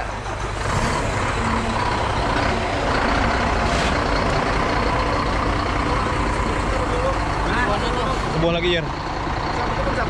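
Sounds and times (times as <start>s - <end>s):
diesel truck engine running: 0.0s - 10.0s.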